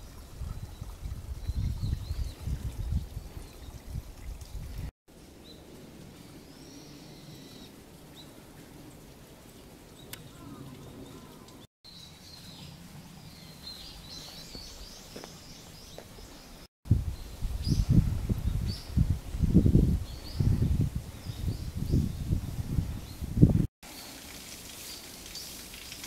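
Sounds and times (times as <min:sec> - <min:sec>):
small birds chirping: 0:09.9 - 0:23.3.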